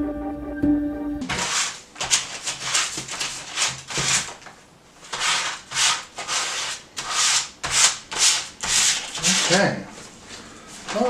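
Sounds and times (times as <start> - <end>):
sandpaper rubbing plastic: 1.2 - 9.8.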